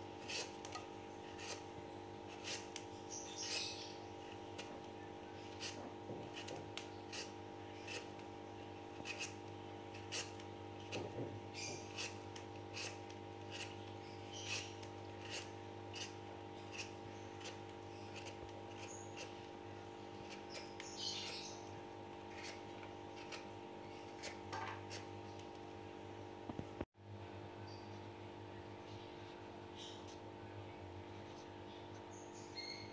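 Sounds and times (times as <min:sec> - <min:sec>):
peeler scraping fruit skin: 0:00.0 - 0:25.5.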